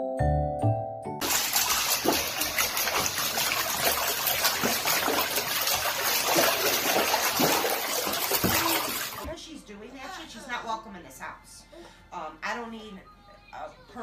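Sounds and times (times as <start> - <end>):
water churning in jetted tub: 1.2 - 9.3.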